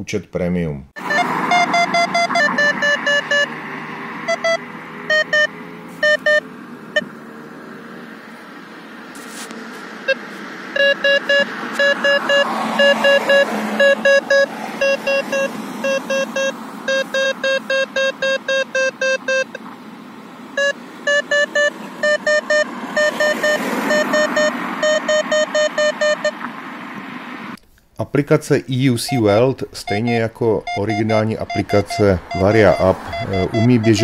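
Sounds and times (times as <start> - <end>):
radar alert beeps: 1.0 - 3.6, 4.2 - 6.4, 10.8 - 19.6, 20.6 - 26.4, 29.1 - 34.0
cars driving past: 1.0 - 27.6, 29.0 - 34.0.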